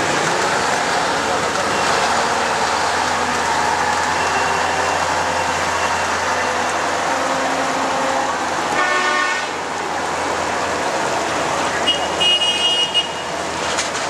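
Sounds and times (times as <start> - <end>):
truck horn: 4.1 - 9.6, 11.8 - 13.4.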